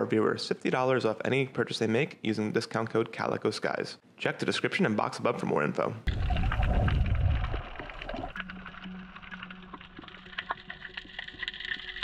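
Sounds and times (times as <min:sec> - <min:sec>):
muffled underwater rush: 0:06.1 - 0:11.1
crackle of small clicks: 0:07.4 - 0:12.0.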